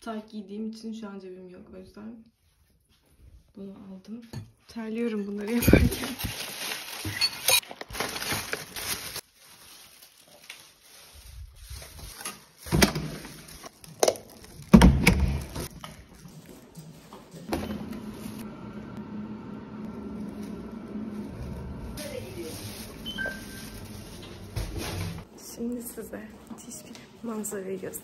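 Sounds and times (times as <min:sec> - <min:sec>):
plastic bags rustling: 0:05.1 - 0:18.5, 0:19.8 - 0:28.0
elevator hum: 0:17.5 - 0:25.2.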